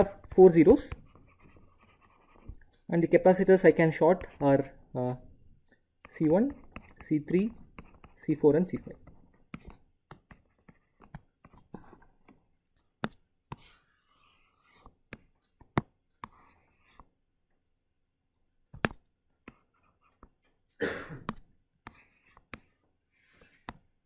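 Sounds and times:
stylus tapping tablet screen: 0:00.0 - 0:17.2, 0:18.6 - 0:20.6, 0:21.2 - 0:24.0
stylus scratching strokes: 0:00.4 - 0:04.8, 0:06.1 - 0:17.2, 0:21.8 - 0:23.8.

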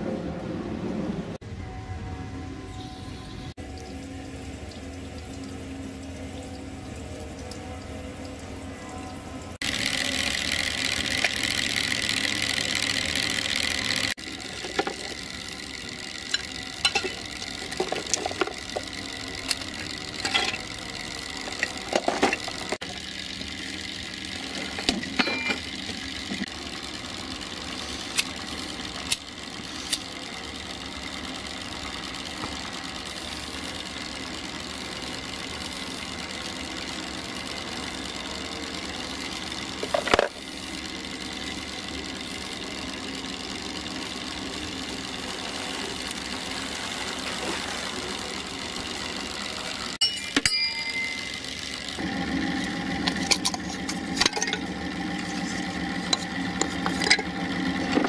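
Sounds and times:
steady mechanical hum: 0:00.0 - 0:58.0
metallic clinks and knocks: 0:50.0 - 0:51.3.

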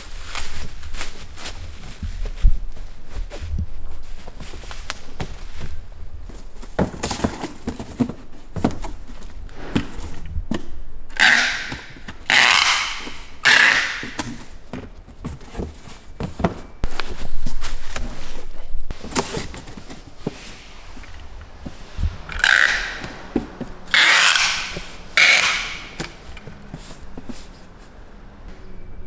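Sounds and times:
cardboard knocks and thunks: 0:01.8 - 0:10.7, 0:14.1 - 0:17.0
packing tape ripping: 0:11.2 - 0:14.4, 0:23.9 - 0:26.2.

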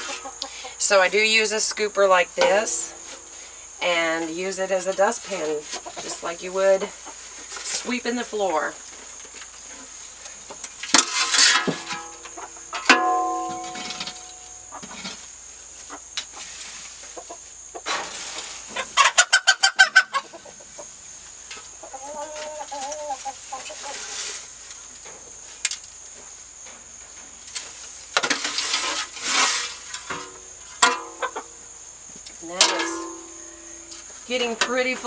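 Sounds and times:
straw being shovelled: 0:10.9 - 0:12.1, 0:17.9 - 0:18.8, 0:23.7 - 0:24.6, 0:27.5 - 0:30.4
small scrapes: 0:10.9 - 0:12.2, 0:17.9 - 0:18.9, 0:23.2 - 0:24.8, 0:27.5 - 0:30.4
metal shovel knock ringing: 0:12.9 - 0:14.5.

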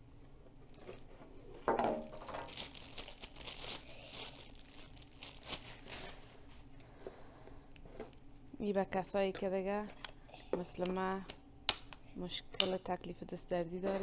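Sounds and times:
plastic packaging crinkling: 0:01.9 - 0:06.6.

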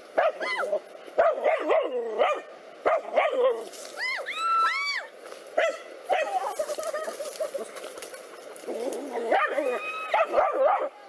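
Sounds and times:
dog barking and yelping: 0:00.2 - 0:03.7, 0:05.6 - 0:07.7, 0:08.6 - 0:11.0.

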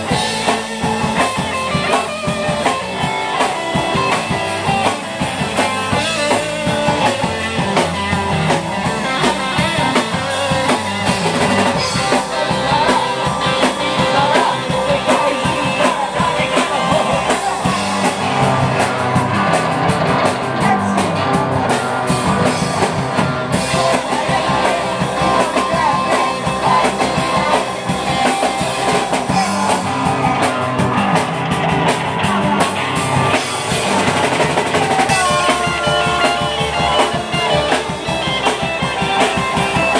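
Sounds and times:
distorted electric guitars: 0:00.0 - 0:39.9
drum kit: 0:00.0 - 0:39.9.

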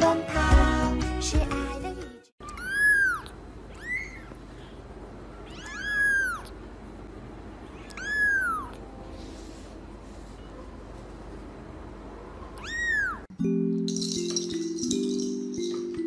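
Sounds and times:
kitten mewing: 0:02.4 - 0:04.4, 0:05.4 - 0:06.6, 0:07.7 - 0:08.9, 0:12.6 - 0:13.2.

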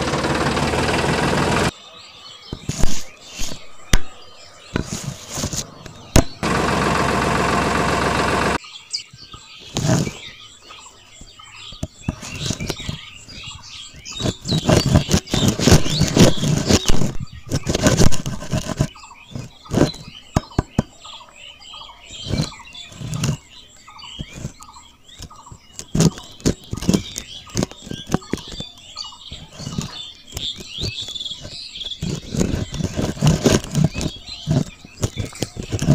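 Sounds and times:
steady buzzing hum: 0:00.0 - 0:01.7, 0:03.6 - 0:08.6
small birds chirping: 0:00.0 - 0:35.9
hands handling plastic parts: 0:02.6 - 0:06.4, 0:11.8 - 0:20.9, 0:24.2 - 0:35.9.

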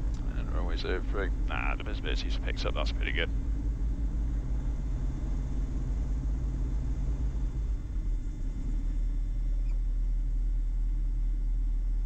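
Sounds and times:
aircraft engines droning: 0:00.0 - 0:10.4.

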